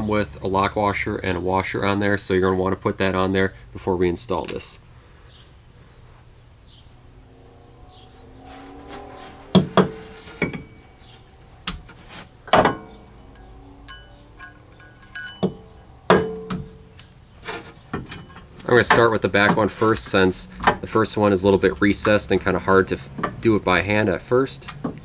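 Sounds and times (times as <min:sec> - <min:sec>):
metallic clinks and knocks: 0:09.7 - 0:11.8, 0:12.4 - 0:17.0, 0:17.9 - 0:19.1.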